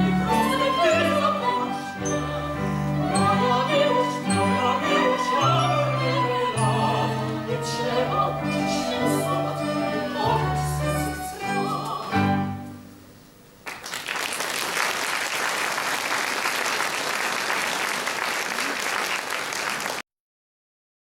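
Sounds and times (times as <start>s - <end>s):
singers and chamber orchestra: 0.0s - 13.0s
audience applause: 13.6s - 20.0s.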